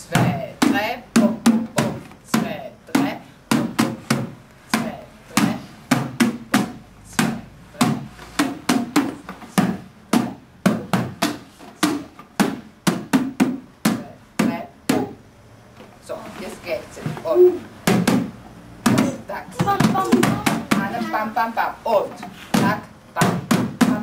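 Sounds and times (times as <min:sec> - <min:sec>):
sharp drum-like hits: 0:00.1 - 0:15.2, 0:17.4 - 0:21.1.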